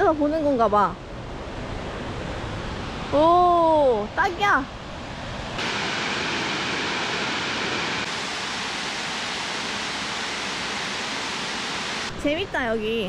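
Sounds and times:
waterfall rushing: 0:05.6 - 0:12.2.

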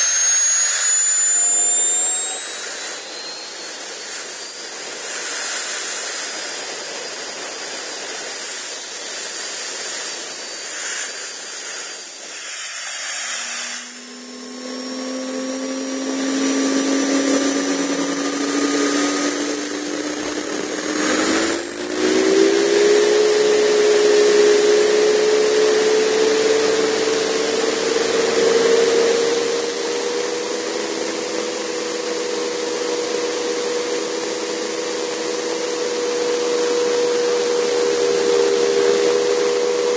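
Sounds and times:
low hum rising in pitch: 0:00.0 - 0:04.8, 0:13.6 - 0:39.9
turbine rushing and whining: 0:00.0 - 0:39.9.

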